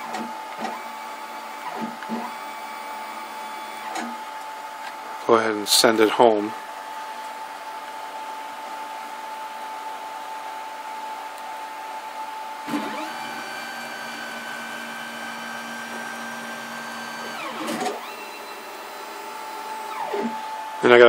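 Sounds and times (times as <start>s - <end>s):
stepper motors whining: 0.0s - 4.2s, 12.7s - 20.6s.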